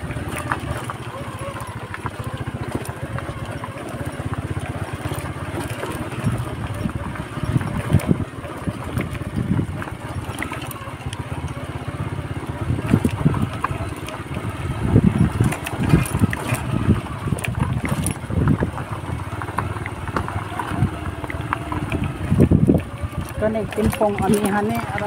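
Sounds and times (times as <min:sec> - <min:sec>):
wind buffeting microphone: 0:04.4 - 0:25.0
knocks and scuffs on stony road: 0:12.3 - 0:23.2.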